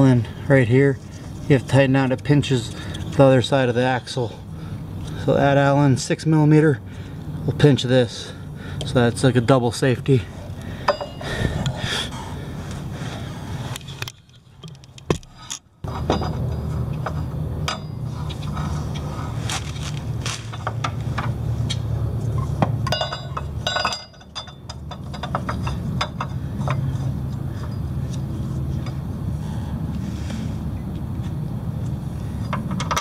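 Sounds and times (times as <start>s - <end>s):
steady low hum: 0.0s - 33.0s
metal clinks and scrapes: 13.7s - 29.1s, 32.3s - 33.0s.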